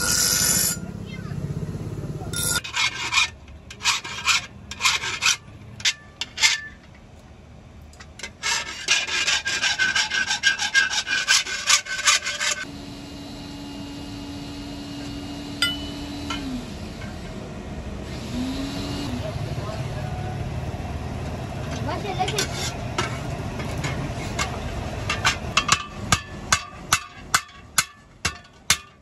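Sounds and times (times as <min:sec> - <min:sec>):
hand file rasping on metal: 0:02.6 - 0:05.4, 0:08.4 - 0:12.7
steady low hum: 0:12.4 - 0:27.6.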